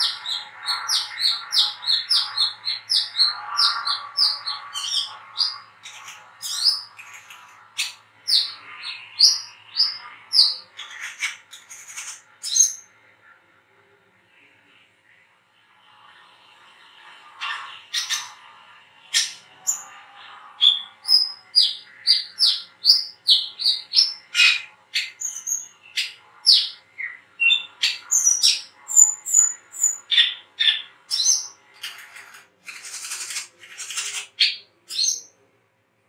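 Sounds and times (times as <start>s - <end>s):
bird raspy calls: 0.0s - 12.8s, 17.4s - 18.4s, 20.6s - 35.2s.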